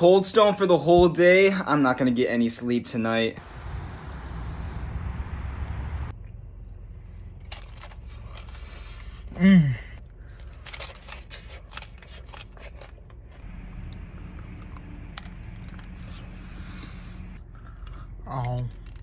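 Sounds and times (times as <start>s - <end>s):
person humming: 9.4s - 9.9s
crisp crunching of waffle cone: 10.0s - 13.5s.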